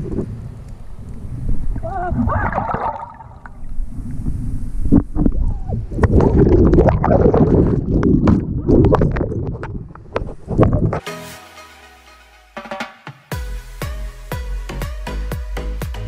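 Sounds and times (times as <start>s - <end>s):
muffled underwater rumble: 0.0s - 11.0s
bubbles bubbling and crackling: 1.7s - 11.0s.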